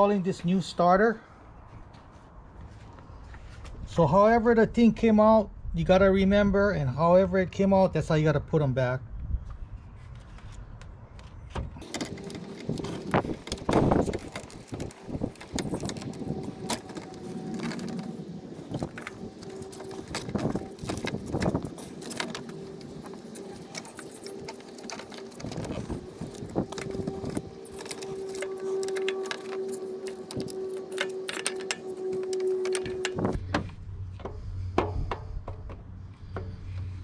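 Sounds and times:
metallic clinks and scrapes: 11.8s - 33.4s.

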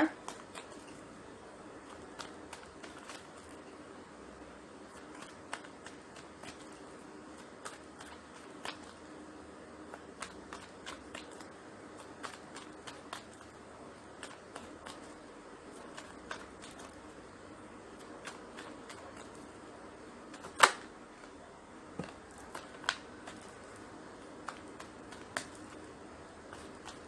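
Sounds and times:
cards being shuffled: 0.1s - 1.1s, 1.8s - 3.7s, 4.8s - 9.1s, 9.8s - 17.1s, 17.9s - 19.6s, 20.2s - 21.4s, 22.0s - 27.0s
sharp card snap: 20.3s - 20.9s.

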